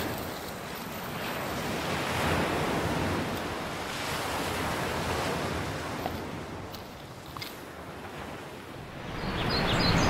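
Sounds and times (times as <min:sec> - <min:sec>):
ocean surf breaking: 0:00.0 - 0:06.7.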